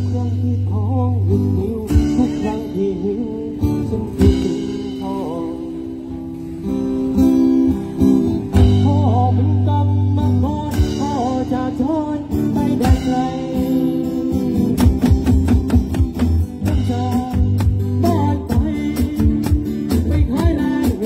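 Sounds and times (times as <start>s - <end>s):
man singing: 0.0s - 6.3s, 8.5s - 21.0s
strummed acoustic guitar: 0.0s - 21.0s
bass drum and cymbal hits: 14.7s - 21.0s.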